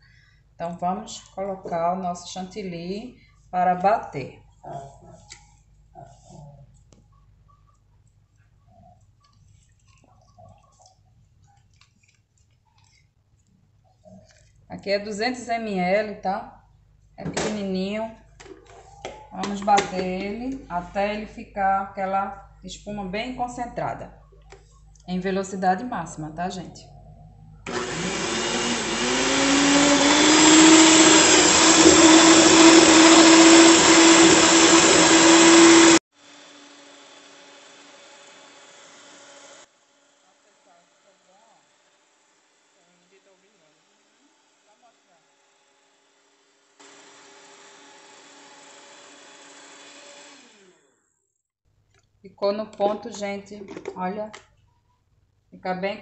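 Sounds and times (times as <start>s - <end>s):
stand mixer motor whine: 27.7s - 39.7s, 46.8s - 50.8s.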